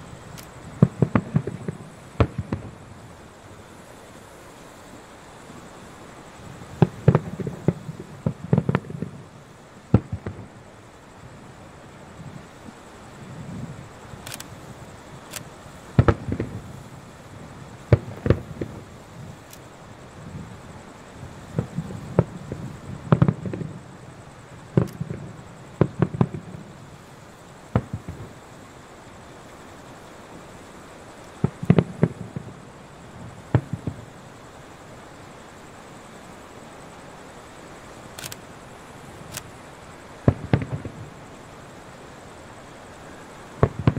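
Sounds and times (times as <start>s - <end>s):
faint steady hiss: 0.0s - 43.9s
firework shells bursting: 0.2s - 2.8s, 6.8s - 9.2s, 9.9s - 10.5s, 15.2s - 16.7s, 17.8s - 19.7s, 21.5s - 23.8s, 24.7s - 26.6s, 27.7s - 28.4s, 33.4s - 34.1s, 40.3s - 41.2s, 43.6s - 43.9s.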